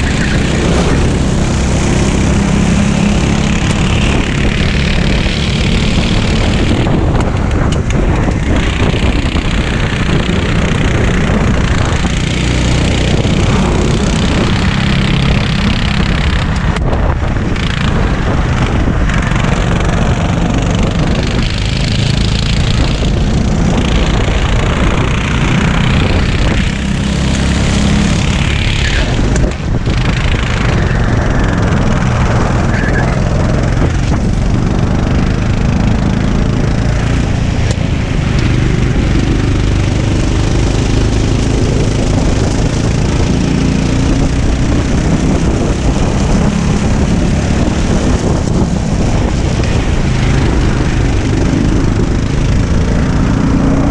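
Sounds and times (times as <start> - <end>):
go-kart engine revving: 0.0 - 53.9
wind buffeting microphone: 0.0 - 53.9.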